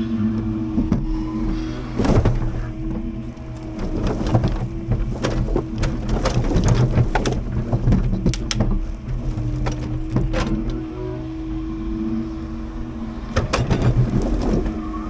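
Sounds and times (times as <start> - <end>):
diesel truck engine running: 0.0 - 15.0
sharp knocks and clatters: 2.0 - 10.7.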